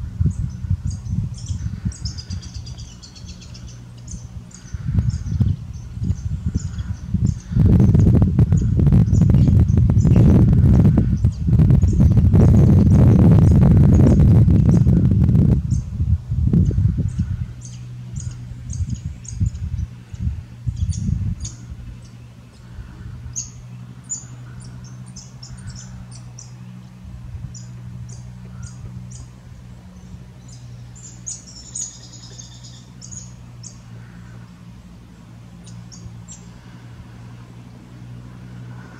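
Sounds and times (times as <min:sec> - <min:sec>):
birds chirping: 0:00.0 - 0:38.9
steady low hum: 0:00.0 - 0:38.9
breathing on microphone: 0:22.5 - 0:23.4, 0:36.4 - 0:37.6, 0:38.2 - 0:38.9.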